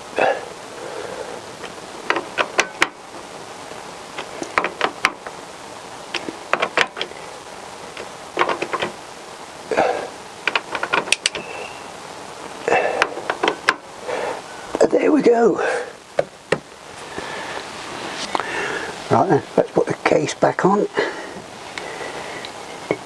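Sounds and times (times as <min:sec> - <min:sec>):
socket ratchet clicking: 0:10.4 - 0:11.5.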